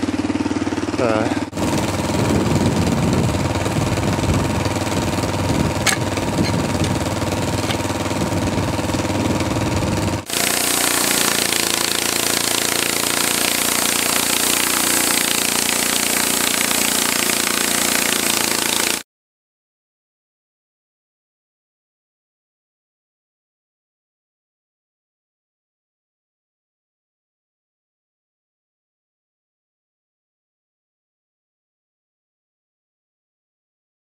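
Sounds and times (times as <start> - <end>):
sawmill engine running: 0.0 - 19.0
band saw blade cutting log: 4.7 - 9.2, 10.2 - 19.0.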